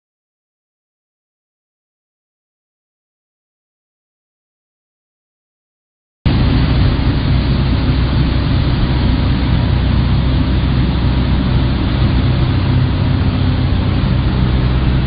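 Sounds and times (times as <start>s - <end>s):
motor boat engine humming: 6.3s - 15.0s
water rushing in wake: 6.3s - 15.0s.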